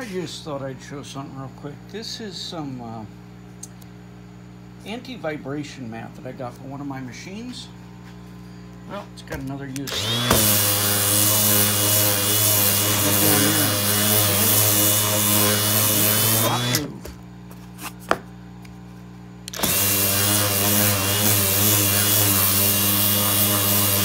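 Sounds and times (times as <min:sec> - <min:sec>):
orbital sander whining: 0:09.8 - 0:17.0, 0:19.5 - 0:24.0.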